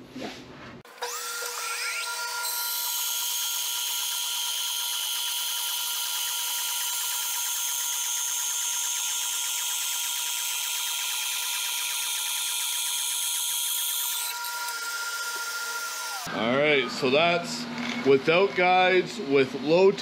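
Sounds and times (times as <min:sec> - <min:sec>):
bandsaw cutting log: 0:00.9 - 0:16.3
motors whining: 0:00.9 - 0:18.7
dust collector running: 0:00.9 - 0:20.0.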